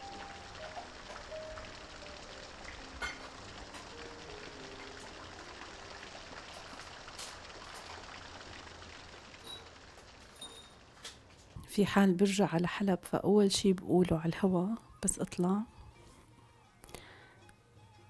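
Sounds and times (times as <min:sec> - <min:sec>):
faint slow music notes: 0:00.0 - 0:08.2, 0:13.2 - 0:18.0
steady rain: 0:00.0 - 0:11.7.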